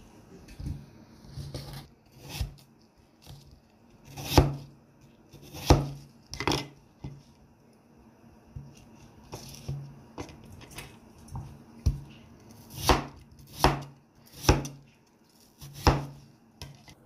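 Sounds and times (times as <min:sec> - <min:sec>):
knife chopping on wooden board: 0:04.1 - 0:04.7, 0:05.3 - 0:07.2, 0:11.8 - 0:14.8, 0:15.6 - 0:16.9.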